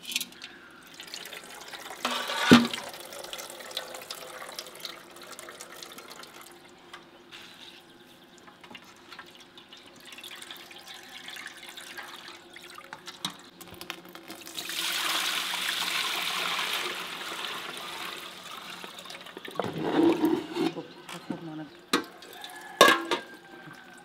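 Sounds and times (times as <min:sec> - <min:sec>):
liquid trickling and dripping: 0:00.2 - 0:07.0, 0:08.3 - 0:15.0, 0:22.0 - 0:24.0
liquid pouring into a pot: 0:00.4 - 0:06.7, 0:08.8 - 0:19.8.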